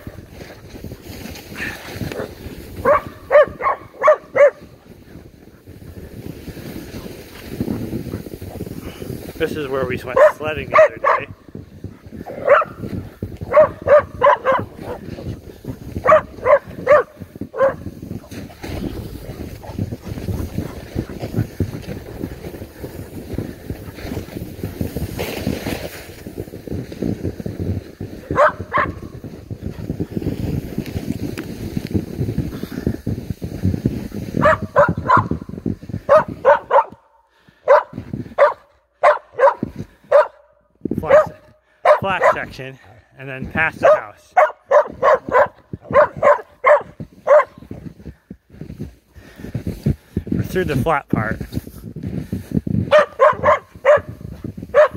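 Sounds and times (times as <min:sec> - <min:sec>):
wind rumble on microphone: 0:00.0 - 0:54.9
dog barking: 0:01.6 - 0:04.7, 0:10.0 - 0:11.4, 0:12.3 - 0:12.8, 0:13.4 - 0:15.1, 0:16.0 - 0:17.8, 0:28.2 - 0:29.1, 0:34.4 - 0:35.5, 0:36.1 - 0:42.5, 0:43.8 - 0:47.6, 0:52.9 - 0:54.9.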